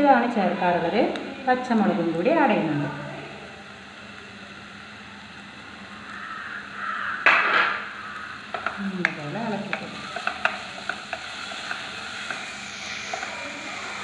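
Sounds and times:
onions sizzling in oil: 0.1 - 14.0
spatula tapping on pan: 8.5 - 12.4
spatula scraping pan: 9.4 - 14.0.

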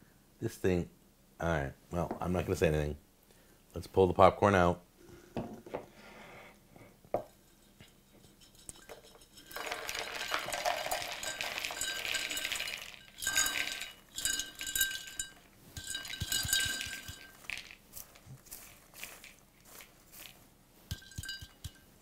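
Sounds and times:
popcorn pouring into plastic bowl: 9.4 - 20.4
popper shaken out: 9.5 - 21.6.

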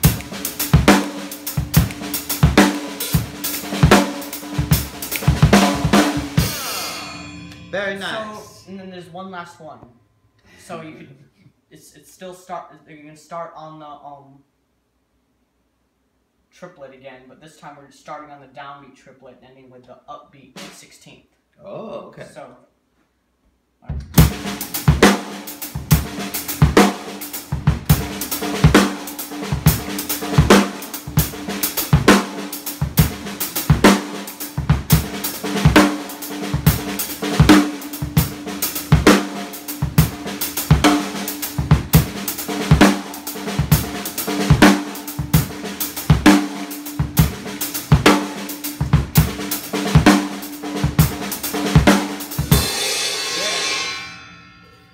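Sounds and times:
acoustic drum kit playing: 0.0 - 9.6, 23.8 - 54.6.

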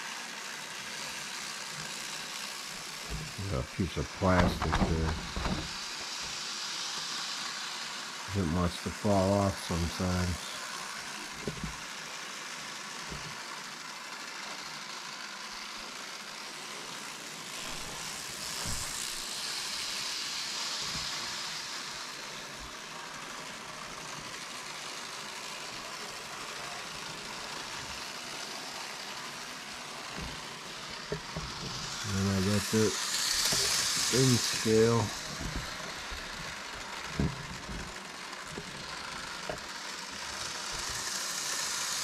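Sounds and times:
model train whirring on track: 0.0 - 42.0.

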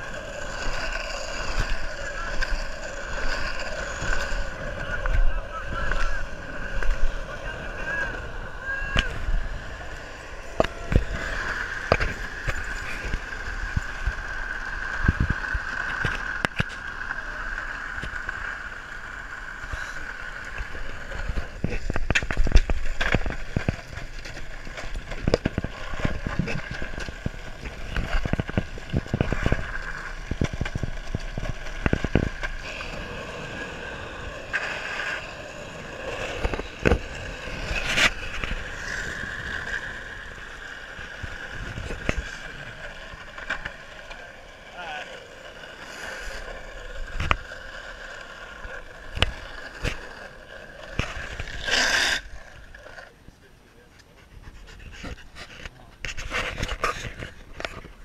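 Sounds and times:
skateboard wheels clacking over cracks: 0.0 - 53.3, 54.7 - 58.0
skateboard wheels rumbling on pavement: 0.0 - 58.0.

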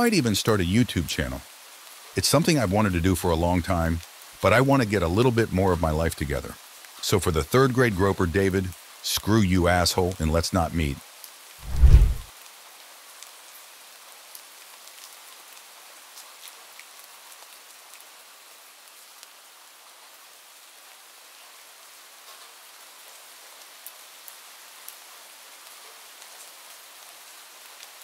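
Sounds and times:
raindrops ticking: 0.0 - 1.4, 2.2 - 11.0
steady rain hiss: 0.0 - 28.0.

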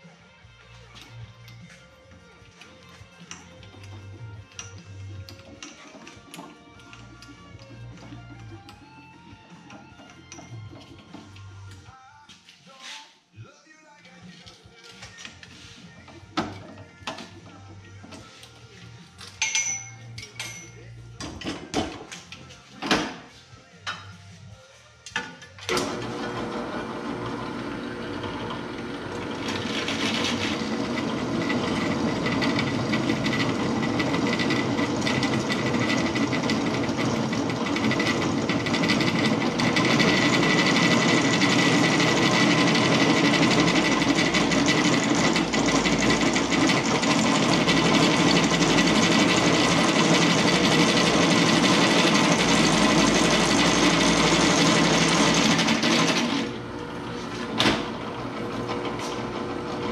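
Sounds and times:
drill press motor whirring: 25.7 - 59.9
drill bit cutting steel: 28.5 - 56.5.

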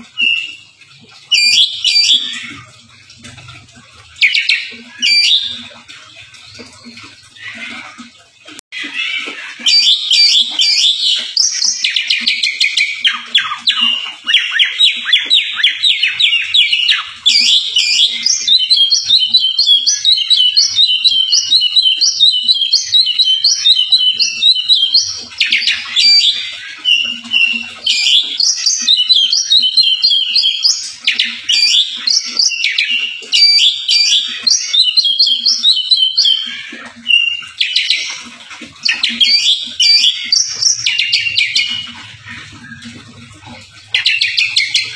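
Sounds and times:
songbird singing: 9.6 - 42.0.

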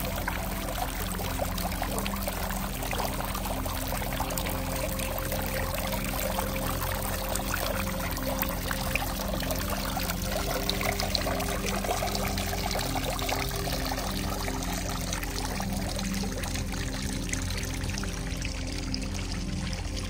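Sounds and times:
liquid pouring and trickling: 0.0 - 20.0.

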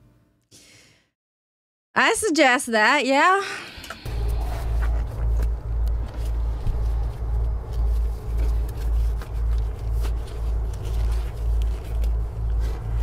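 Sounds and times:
low pulsing rumble: 4.0 - 13.0.

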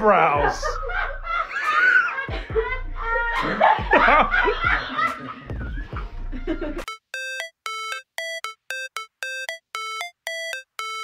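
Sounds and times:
voices and laughter: 0.3 - 6.9
repeating electronic chime: 6.9 - 11.0.

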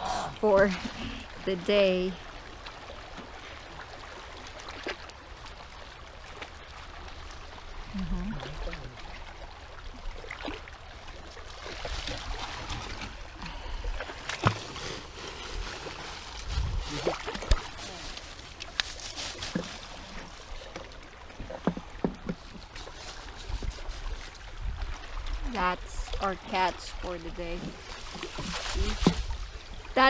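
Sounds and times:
water sloshing around legs: 0.4 - 30.0
water streaming off net bag: 10.2 - 30.0.

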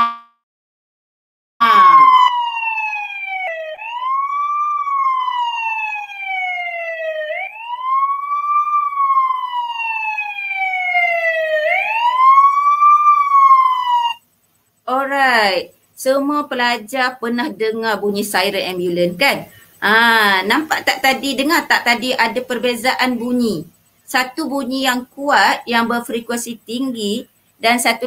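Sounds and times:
ambulance siren wailing: 1.6 - 14.2.

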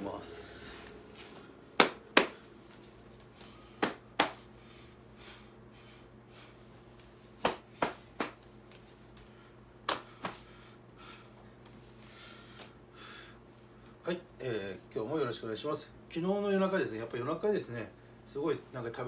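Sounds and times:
faint steady hum: 0.0 - 19.0
bare feet slapping on tile: 1.8 - 4.5, 7.0 - 10.6.

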